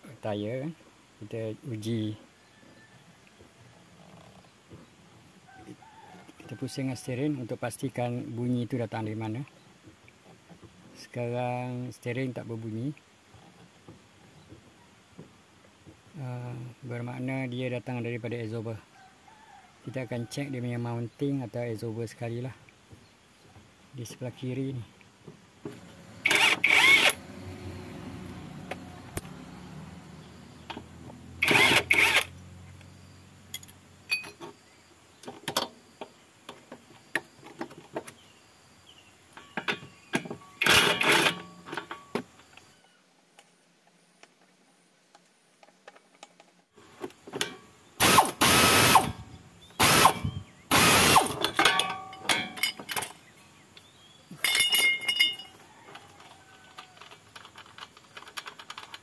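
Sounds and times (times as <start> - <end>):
ratchet wrench clicking: 26.2 - 27.2, 29.2 - 29.4, 31.4 - 32.3
metallic tool clinks: 29.2 - 29.5, 54.4 - 55.6.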